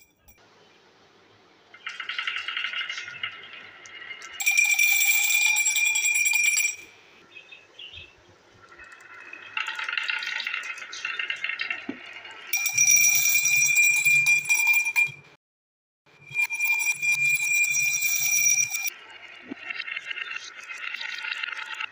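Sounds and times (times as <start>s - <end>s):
marbles rolling on wood: 1.8s - 6.9s, 8.6s - 15.2s, 16.3s - 21.9s
marbles clinking into glass: 2.0s - 6.9s, 16.2s - 18.9s.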